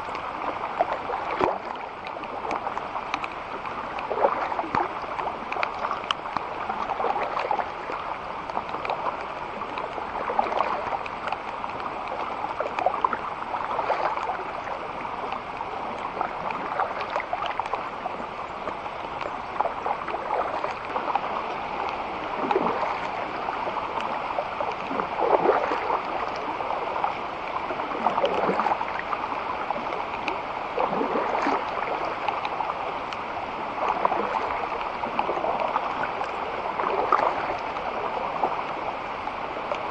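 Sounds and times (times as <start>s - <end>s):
water splashing and gurgling: 0.0s - 39.9s.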